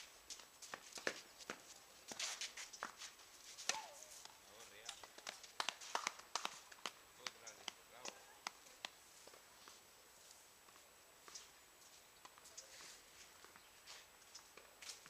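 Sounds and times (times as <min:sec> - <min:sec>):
footsteps and shoe scuffs: 0:00.0 - 0:04.7, 0:08.0 - 0:15.0.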